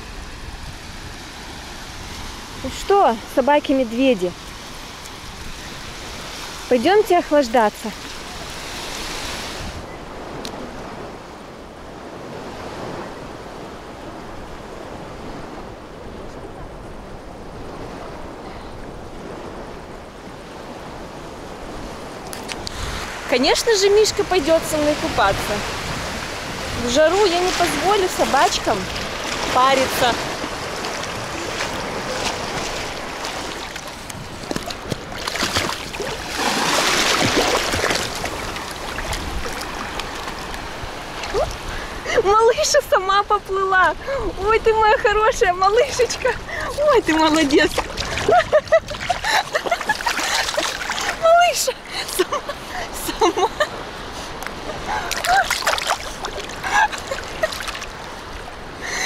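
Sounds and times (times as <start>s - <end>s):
small waves washing onto shore: 0.0s - 59.0s
wind buffeting microphone: 0.0s - 59.0s
sea water sloshing and splashing: 20.5s - 42.2s, 45.7s - 59.0s
loud splash: 34.6s - 40.4s, 47.6s - 51.3s, 55.1s - 57.9s.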